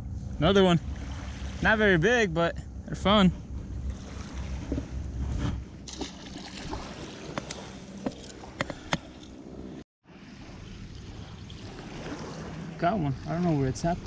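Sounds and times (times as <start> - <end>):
low handling rumble: 0.0 - 9.8
waves lapping on gravel shore: 5.9 - 8.6, 10.1 - 14.0.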